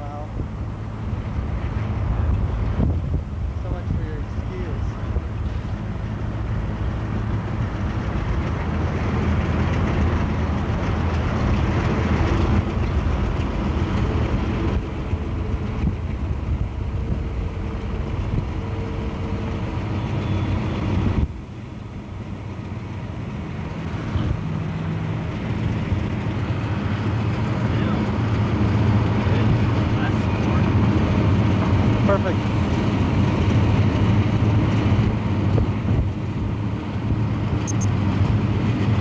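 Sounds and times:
low rumble of moving vehicles: 0:00.0 - 0:39.0.

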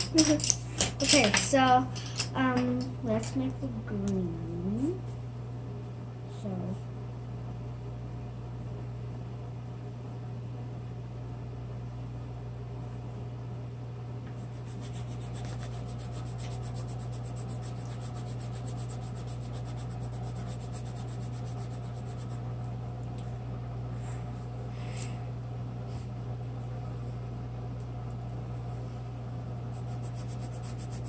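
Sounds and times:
colored pencil scratching on paper: 0:14.4 - 0:22.4, 0:29.7 - 0:31.0.

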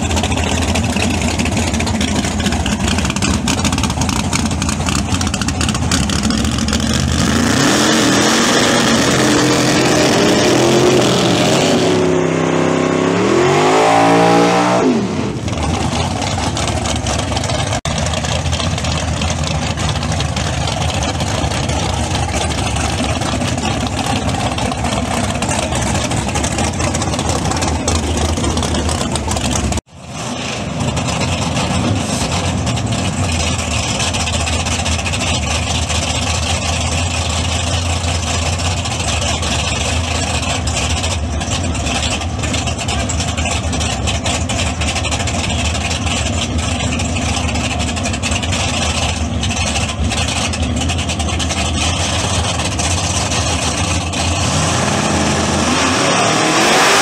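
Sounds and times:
race car engine revving: 0:00.0 - 0:17.8, 0:20.9 - 0:35.4, 0:38.2 - 0:57.0.

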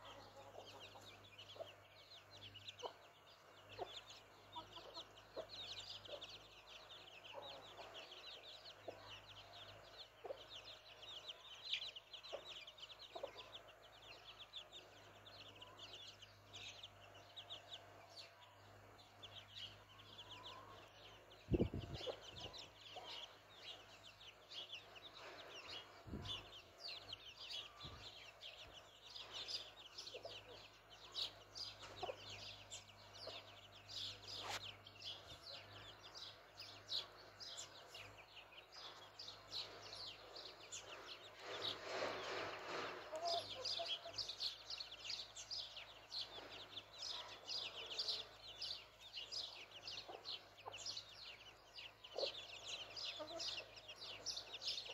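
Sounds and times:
chicks peeping: 0:00.0 - 0:54.9.

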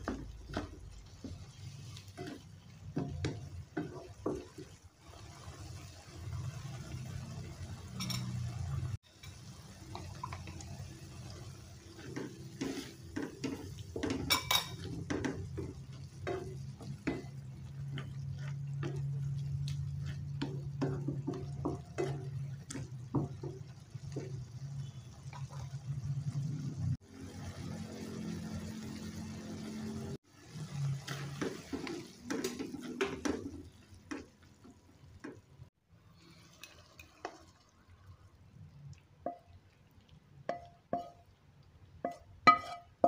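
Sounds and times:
metal spatula scraping a wok: 0:12.4 - 0:14.9, 0:42.5 - 0:43.0.

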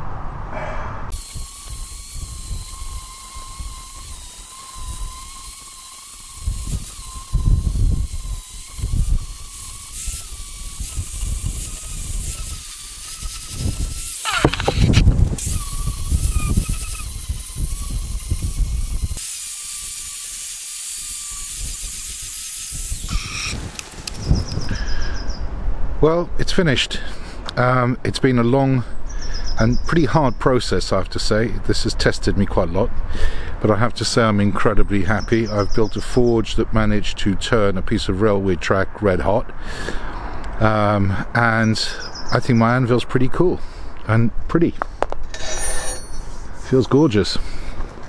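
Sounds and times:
angle grinder grinding steel: 0:01.1 - 0:24.8.

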